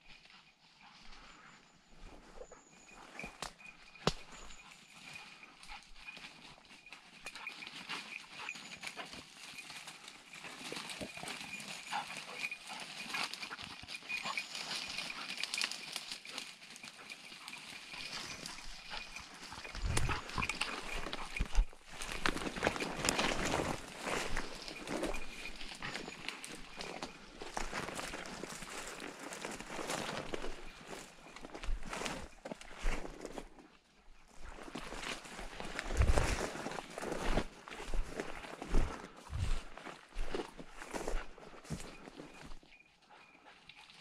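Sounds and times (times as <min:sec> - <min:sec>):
footsteps on dry leaves and twigs: 0:00.0 - 0:43.3
brush rustling: 0:06.8 - 0:33.5, 0:34.4 - 0:42.6.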